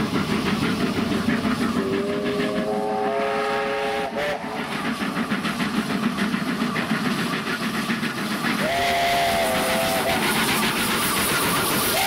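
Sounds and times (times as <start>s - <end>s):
steam hissing: 0.0s - 12.0s
steam locomotive exhaust chuffing: 0.0s - 12.0s
steam whistle blast: 1.9s - 4.6s, 8.6s - 10.4s.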